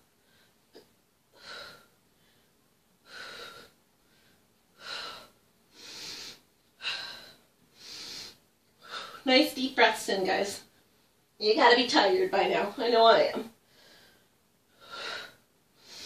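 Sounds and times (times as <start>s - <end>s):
woman breathing hard: 0.1s - 9.2s, 13.6s - 16.0s.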